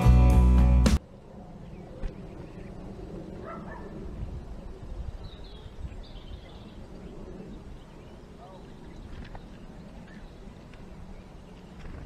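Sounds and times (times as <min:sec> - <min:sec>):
wind rumble on microphone: 0:01.4 - 0:12.0.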